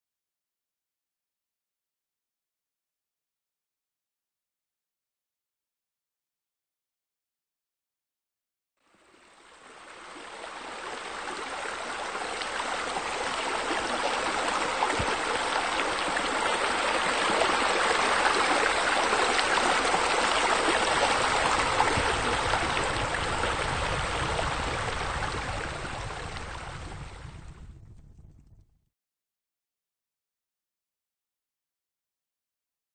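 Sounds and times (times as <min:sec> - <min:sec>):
waterfall rushing water: 0:09.5 - 0:26.8.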